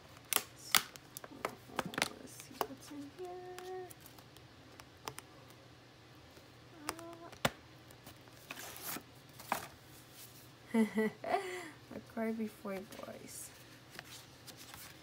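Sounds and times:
woman humming: 6.8s - 7.4s
paper rustling: 8.0s - 10.4s, 12.6s - 15.0s.

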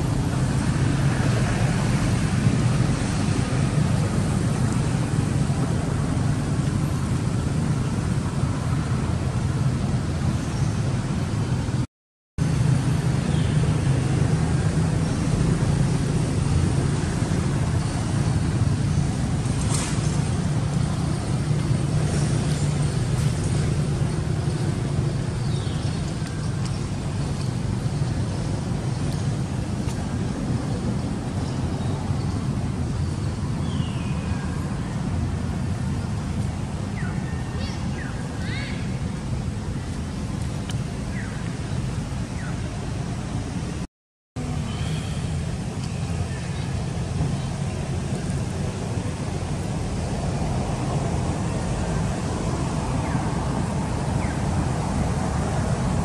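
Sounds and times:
wind buffeting microphone: 0.0s - 11.8s
steady low rumble: 0.0s - 56.0s.

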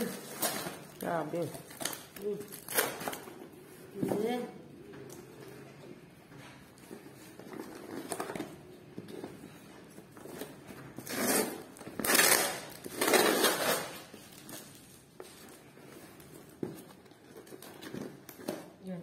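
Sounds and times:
tape rustling and scraping: 0.0s - 4.1s, 5.1s - 18.8s
scissors cutting packing tape: 11.0s - 14.1s.

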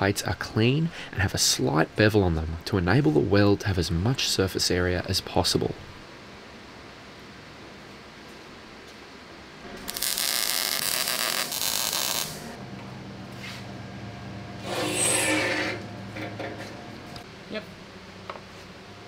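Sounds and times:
welder crackling: 9.7s - 12.5s
low steady hum: 10.8s - 19.0s.

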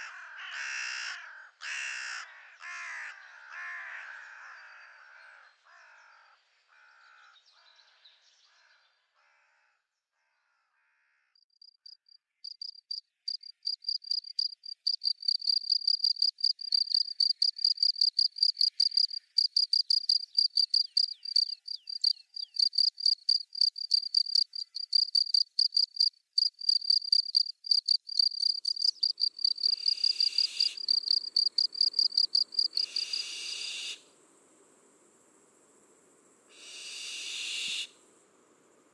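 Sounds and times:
cricket chirping: 11.4s - 38.9s.

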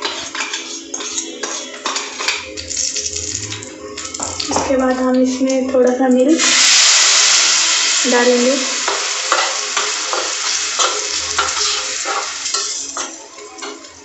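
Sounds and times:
spoon scraping and stirring in pan: 0.0s - 5.9s, 8.8s - 13.9s
milk sizzling in a hot pan: 0.0s - 14.0s.

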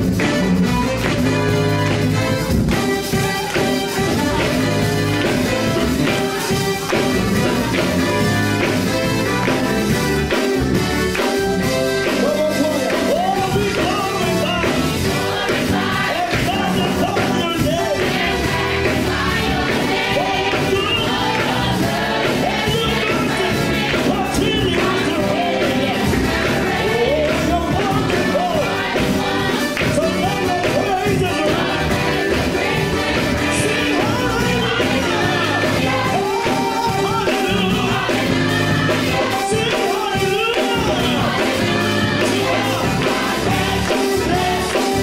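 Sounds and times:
band accompaniment: 0.0s - 45.0s
hand clapping: 0.2s - 14.9s
gospel choir singing: 0.7s - 45.0s.

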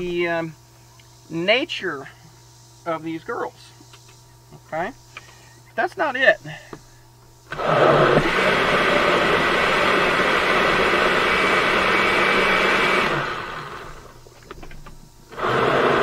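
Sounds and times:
blender motor running: 7.4s - 14.3s, 15.3s - 16.0s.

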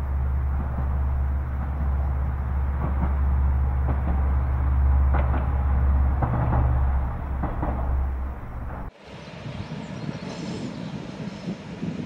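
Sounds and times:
wheels clicking on rails: 0.0s - 8.9s
diesel railcar engine drone: 0.0s - 9.1s.

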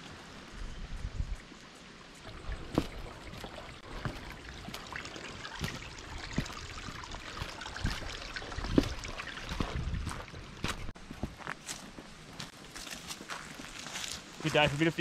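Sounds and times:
creek water trickling over stones: 0.0s - 15.0s
footsteps on rocks: 2.4s - 15.0s.

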